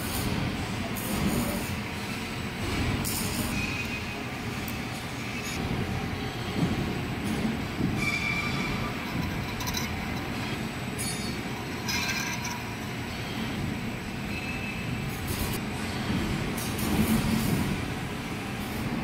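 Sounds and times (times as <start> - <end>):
lathe running: 7.5 - 14.0.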